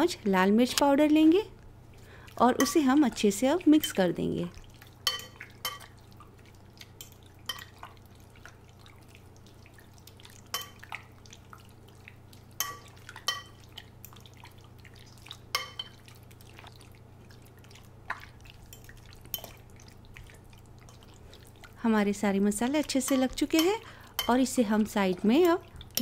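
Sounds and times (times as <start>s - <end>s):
faint steady low hum: 0.0s - 26.0s
utensil clinking against bowl: 5.0s - 5.9s, 12.6s - 13.6s, 23.0s - 24.5s.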